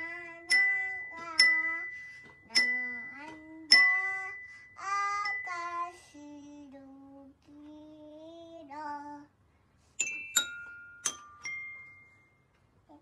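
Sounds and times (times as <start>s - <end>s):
toy piano notes: 0.0s - 6.1s, 10.0s - 12.4s
toddler singing: 0.0s - 9.3s.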